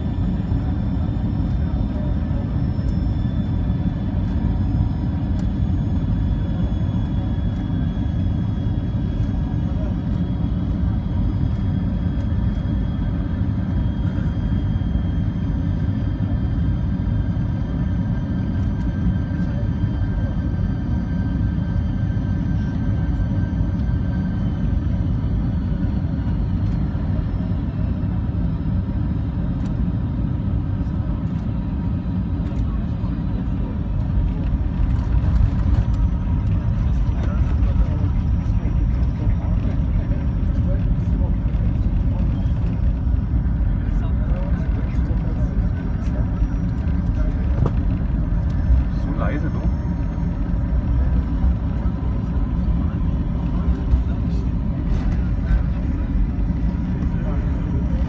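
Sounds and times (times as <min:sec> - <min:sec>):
faint steady whine: 0:00.0 - 0:58.0
jet cabin rumble: 0:00.0 - 0:58.0.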